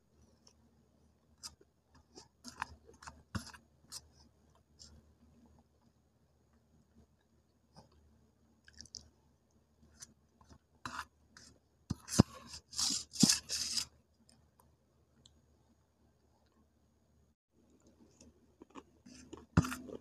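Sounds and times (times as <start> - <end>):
spoon scraping paste in steel bowl: 10.9 - 13.9, 19.1 - 20.0.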